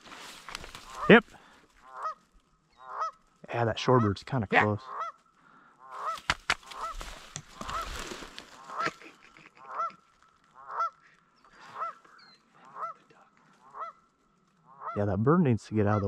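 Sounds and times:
rustling: 0.0s - 3.4s, 6.0s - 11.2s
goose honking: 0.8s - 1.2s, 1.8s - 3.2s, 3.8s - 5.2s, 8.6s - 13.0s, 13.6s - 15.1s, 15.7s - 16.0s.

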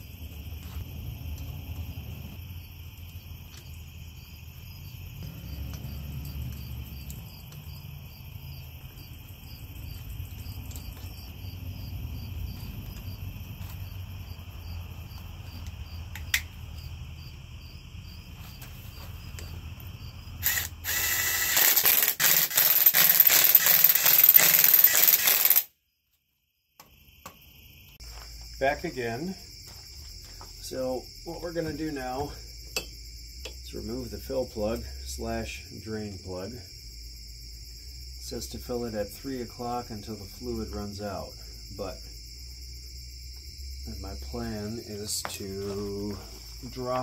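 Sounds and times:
crickets chirping: 0.0s - 47.0s
power tool rattling: 20.4s - 25.7s.

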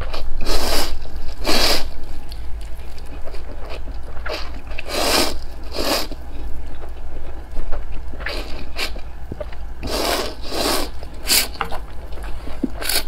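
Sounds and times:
quiet chewing: 0.0s - 13.0s
person slurping noodles: 0.4s - 1.9s, 4.2s - 6.2s, 9.8s - 11.5s.

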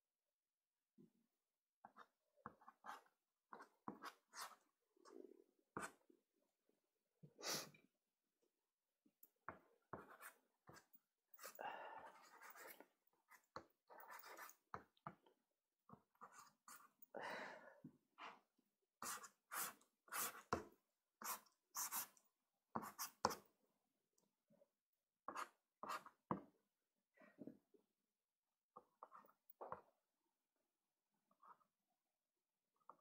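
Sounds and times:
pastel stick scratching paper: 9.9s - 14.7s, 19.0s - 20.6s, 21.2s - 22.2s.

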